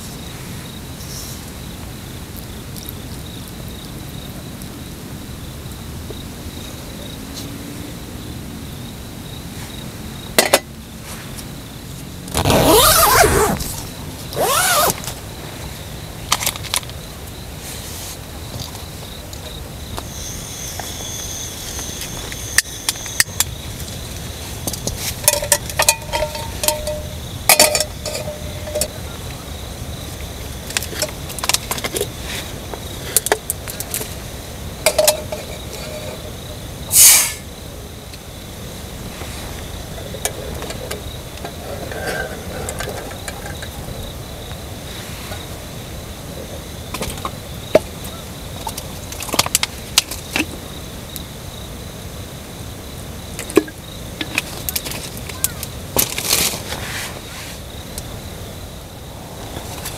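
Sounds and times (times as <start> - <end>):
forest background noise: 0.0 - 59.9
insect hum: 0.0 - 59.9.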